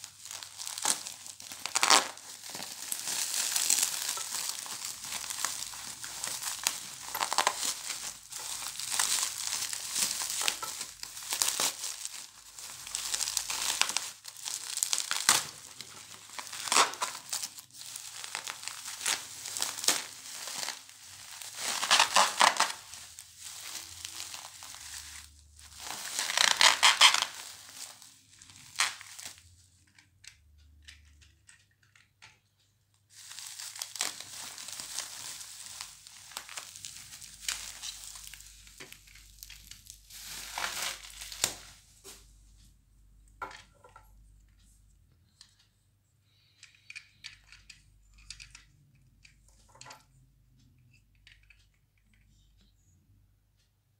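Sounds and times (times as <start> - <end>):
bubble wrap crinkling: 0.0 - 29.4, 33.1 - 42.2.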